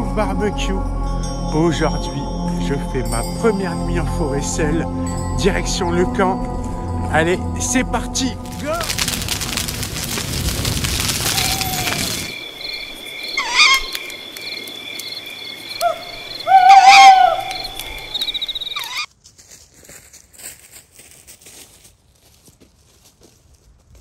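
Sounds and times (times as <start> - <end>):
fire crackling: 6.4 - 18.9
insects chirring: 6.4 - 19.1
croaking hooting animal calls: 11.2 - 19.1.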